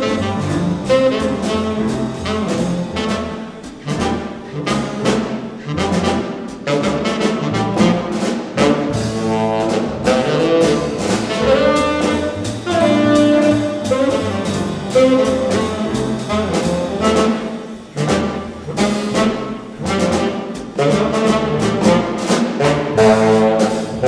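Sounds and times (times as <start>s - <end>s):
drum kit with ride cymbal: 0.0s - 24.0s
tenor saxophone melody: 0.0s - 24.0s
upright bass: 0.0s - 24.0s.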